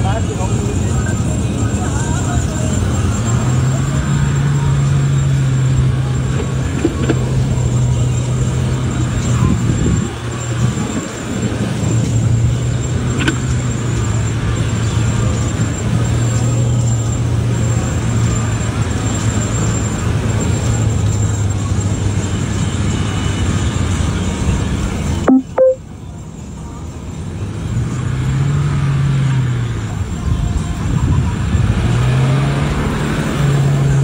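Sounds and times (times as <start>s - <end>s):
suv engine droning: 0.0s - 25.2s.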